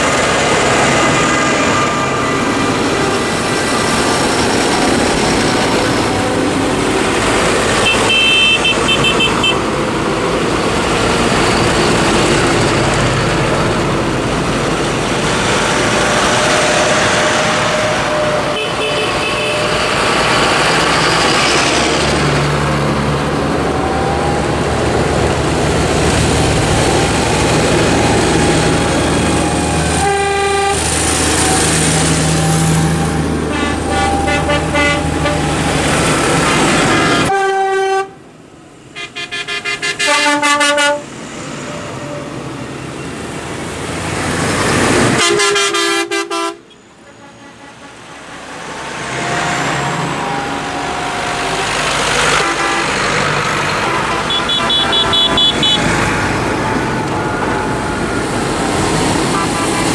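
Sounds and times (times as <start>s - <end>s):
tractor diesel engines: 0.0s - 59.9s
horn toots: 7.7s - 9.7s, 16.3s - 20.2s, 29.9s - 35.8s, 37.0s - 38.2s, 39.0s - 41.0s, 45.1s - 48.1s, 52.2s - 56.0s.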